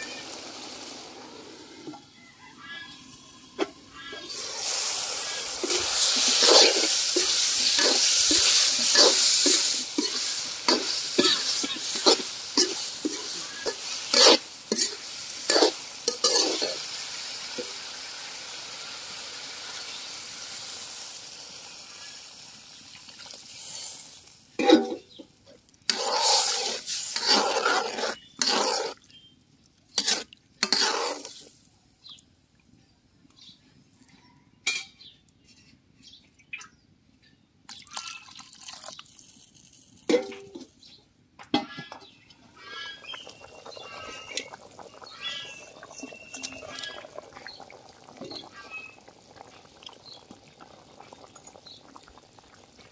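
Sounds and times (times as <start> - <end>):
loud bursts of sizzling water: 0.0 - 1.8, 2.9 - 25.2, 25.8 - 29.1, 29.9 - 31.5, 42.6 - 52.9
vegetables sizzling in pan: 0.0 - 1.8, 4.2 - 25.2, 25.8 - 29.0, 30.0 - 31.5, 42.8 - 52.9
metal ladle scraping pan: 3.6 - 16.8, 24.6 - 25.2, 25.9 - 29.0, 30.0 - 31.5, 42.6 - 47.6.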